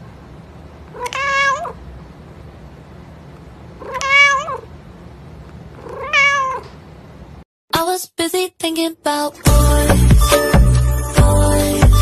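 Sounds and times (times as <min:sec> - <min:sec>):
cat meowing: 0:00.9 - 0:01.8, 0:03.8 - 0:04.7, 0:05.8 - 0:06.8.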